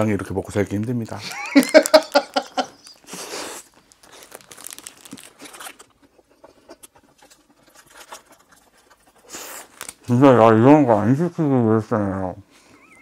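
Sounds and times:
paper wrapper crinkling: 1.0 - 10.2.

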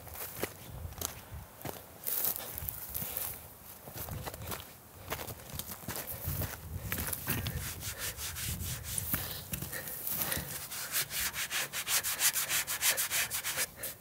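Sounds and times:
gloved hand scrubbing rusty steel: 7.4 - 14.0.

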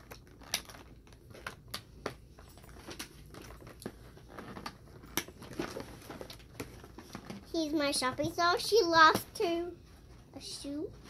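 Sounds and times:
packaging crinkling: 0.0 - 7.5.

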